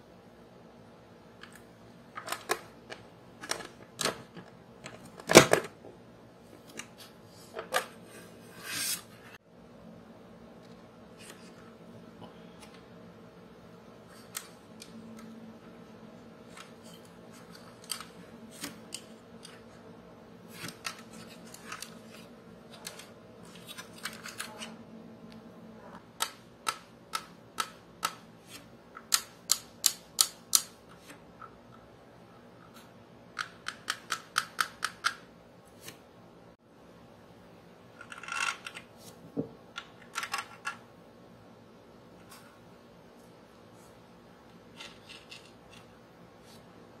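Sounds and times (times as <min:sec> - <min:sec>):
clicks of handling model parts: 0:16.5 - 0:19.7.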